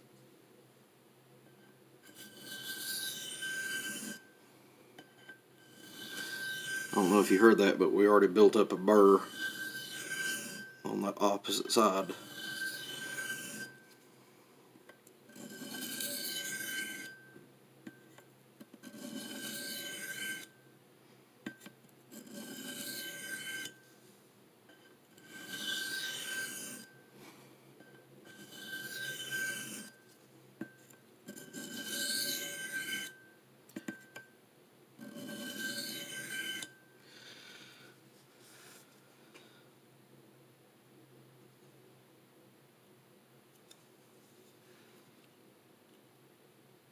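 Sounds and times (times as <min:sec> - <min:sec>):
knife scraping on sharpening plate: 0:01.5 - 0:04.3, 0:05.0 - 0:07.6, 0:09.2 - 0:10.9, 0:11.6 - 0:13.8, 0:15.3 - 0:17.3, 0:18.8 - 0:20.6, 0:22.1 - 0:23.8, 0:24.7 - 0:27.0, 0:27.8 - 0:30.0, 0:30.6 - 0:34.3, 0:35.0 - 0:36.8.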